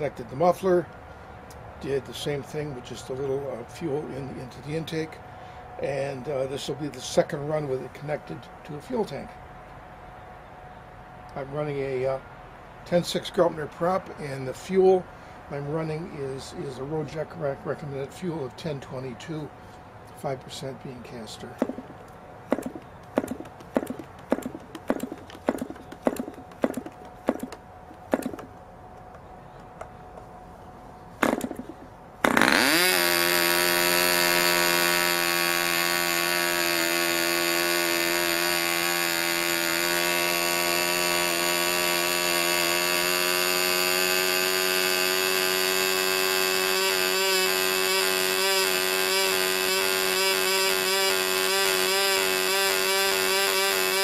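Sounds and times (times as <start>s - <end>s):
model engine running high-pitched: 21.6s - 21.9s, 22.5s - 28.5s, 31.2s - 54.0s
model engine flips and pops: 21.6s - 29.2s, 31.2s - 54.0s.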